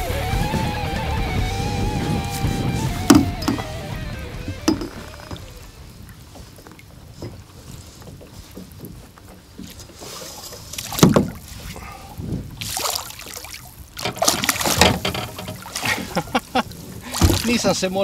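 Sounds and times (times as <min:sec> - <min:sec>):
fish thrashing and splashing: 0:04.4 - 0:17.7.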